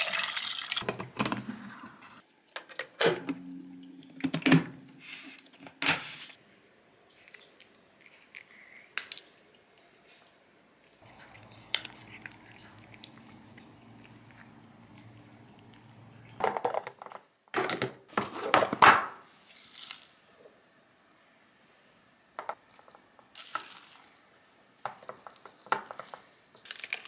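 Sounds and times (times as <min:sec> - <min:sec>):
plastic containers clattering: 0:00.8 - 0:01.7, 0:16.3 - 0:19.2
cats crunching dry treats: 0:11.0 - 0:16.0.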